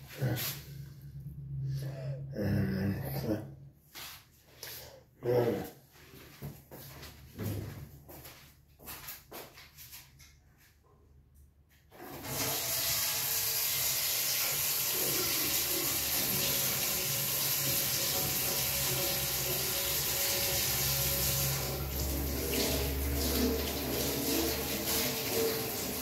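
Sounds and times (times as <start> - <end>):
tap water running into sink: 12.0 - 26.0.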